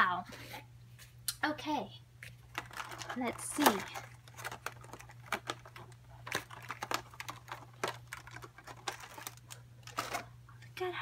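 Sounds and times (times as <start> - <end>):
plastic packaging crackling: 2.2 - 10.4.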